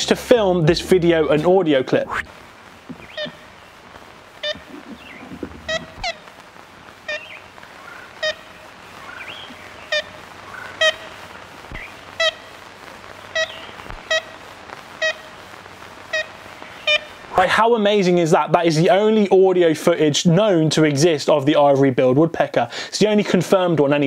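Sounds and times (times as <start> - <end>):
field recording hiss: 0.0 - 24.0
woodpecker call notes: 2.9 - 3.8, 4.4 - 6.4, 7.0 - 12.5, 13.3 - 14.4, 16.1 - 17.2.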